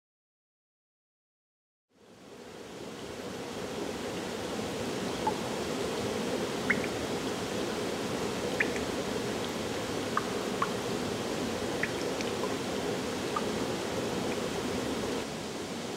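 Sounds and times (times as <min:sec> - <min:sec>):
water flowing over rocks: 0:02.6 - 0:15.9
faint water plinks: 0:04.9 - 0:15.2.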